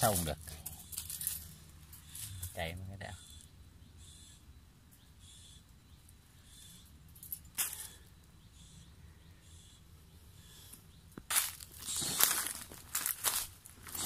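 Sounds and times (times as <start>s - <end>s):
footsteps rustling through dry leaves: 11.3s - 14.0s.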